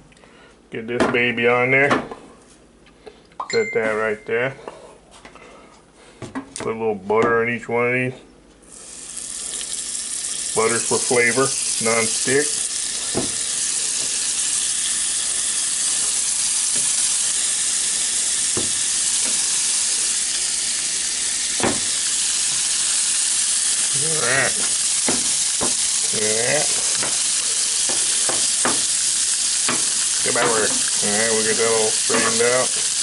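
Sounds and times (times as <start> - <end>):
butter sizzling: 8.6 - 33.0
sharp pops: 21.6 - 22.0, 24.6 - 25.9.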